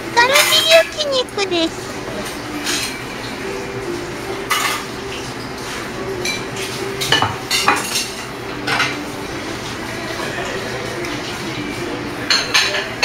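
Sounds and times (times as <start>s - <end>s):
steady background hum: 0.0s - 13.0s
cutlery clinking against plates: 0.2s - 0.8s, 2.2s - 3.1s, 4.4s - 9.1s, 12.2s - 13.0s.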